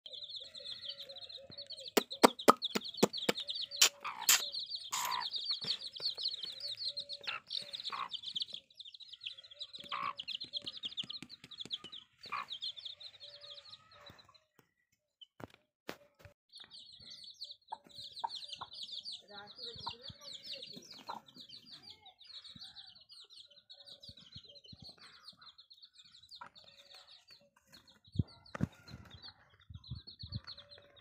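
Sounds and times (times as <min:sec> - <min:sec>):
chicks peeping: 0:00.1 - 0:14.6, 0:16.5 - 0:31.0
sharp clicks and taps: 0:01.9 - 0:06.2, 0:10.4 - 0:12.1.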